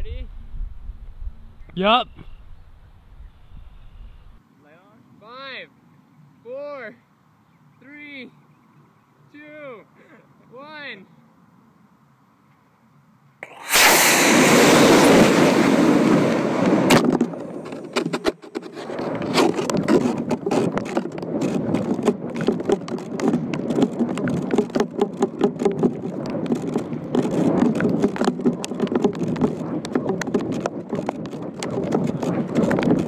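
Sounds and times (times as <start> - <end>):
wind buffeting microphone: 0.0 - 4.4, 13.7 - 33.0
model rocket motor rushing: 13.4 - 17.0.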